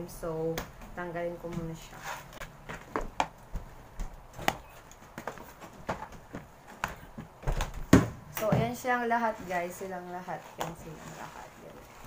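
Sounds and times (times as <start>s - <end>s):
plastic tubs knocking and clattering: 2.4s - 8.8s.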